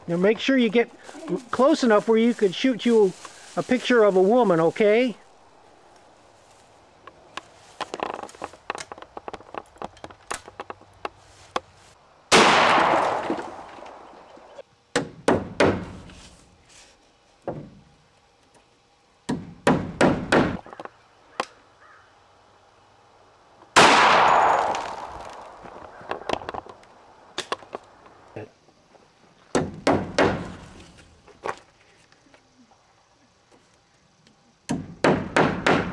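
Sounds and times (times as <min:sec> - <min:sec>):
shotgun blasts echoing: 0:12.3 - 0:13.6, 0:23.8 - 0:25.5
hammer on wooden wall: 0:14.9 - 0:16.0, 0:17.5 - 0:17.8, 0:19.3 - 0:20.6, 0:29.5 - 0:30.5, 0:34.7 - 0:35.9.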